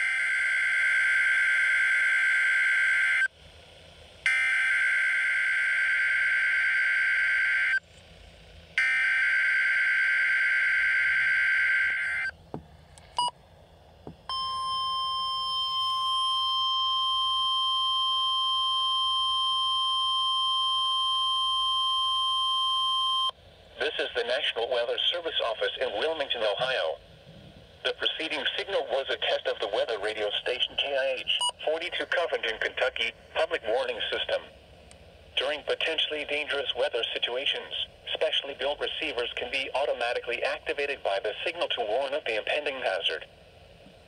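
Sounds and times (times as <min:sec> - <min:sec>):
steady warning alarm tone: 0:00.0 - 0:03.3, 0:04.2 - 0:07.8, 0:08.8 - 0:12.3, 0:14.3 - 0:23.4.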